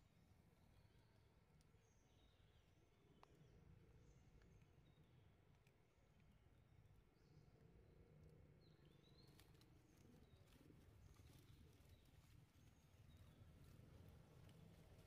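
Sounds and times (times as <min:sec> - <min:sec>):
rustling of dry leaf litter: 0:09.2 - 0:15.0.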